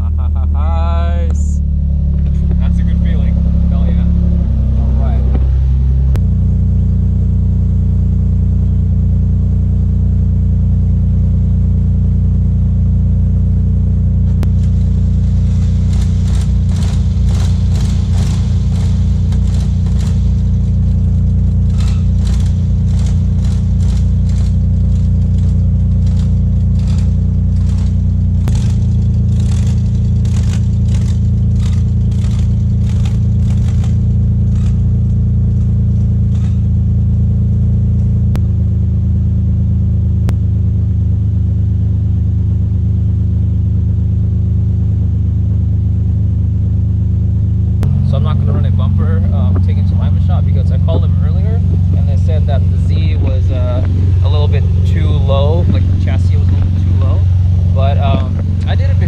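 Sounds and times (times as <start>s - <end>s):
car engine idling: 0.0s - 59.0s
fast rhythmic ticking: 14.4s - 35.0s.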